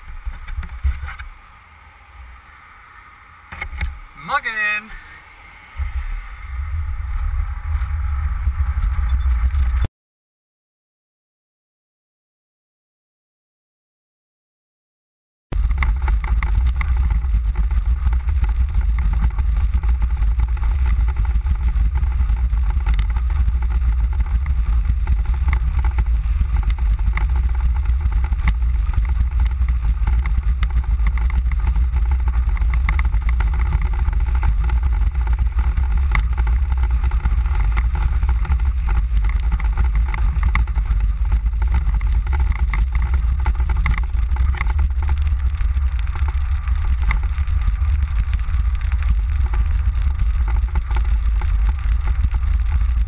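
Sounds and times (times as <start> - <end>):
wheels rumbling over cobblestones: 0.0 - 9.9, 15.5 - 53.0
small rattles: 15.6 - 53.0.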